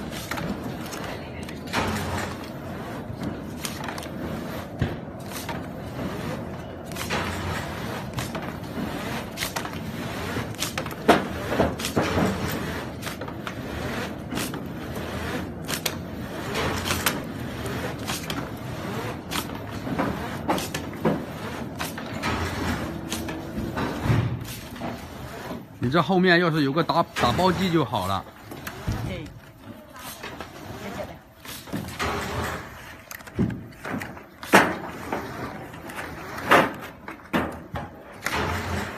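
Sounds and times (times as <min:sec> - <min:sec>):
folding machine running: 0:00.0 - 0:38.9
boxes slapping and knocking: 0:06.4 - 0:25.1.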